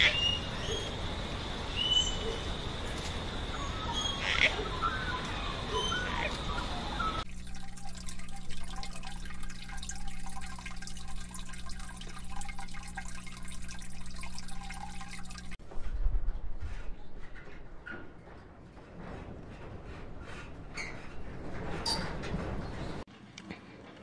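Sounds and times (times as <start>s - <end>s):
bird chirps: 0.0s - 1.0s, 1.7s - 2.6s, 3.5s - 7.2s
low electric pump hum: 0.0s - 15.6s
water trickling and dripping: 6.0s - 15.6s.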